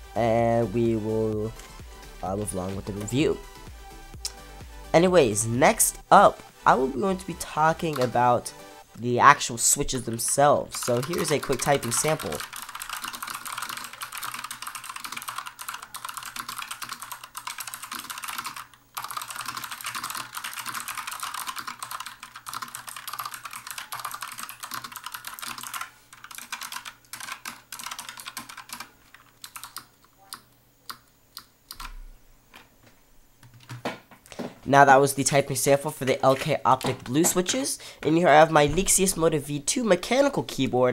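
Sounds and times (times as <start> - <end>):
clicky mechanical keyboard typing: 7.1 - 8.5, 9.8 - 32.0.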